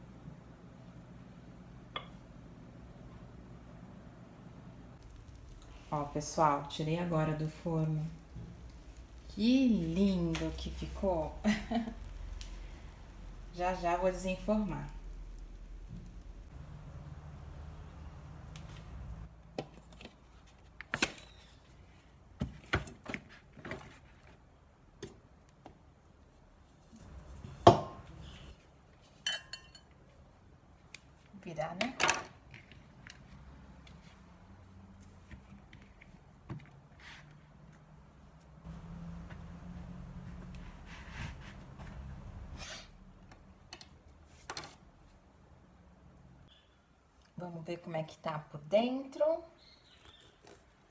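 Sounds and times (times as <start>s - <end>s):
low steady hum: 0.0s - 19.3s.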